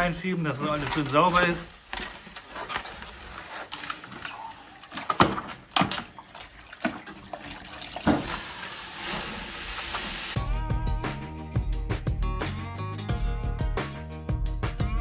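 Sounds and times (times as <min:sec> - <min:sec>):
water sloshing in a bucket: 0:00.7 - 0:10.2
steam hissing: 0:08.2 - 0:10.4.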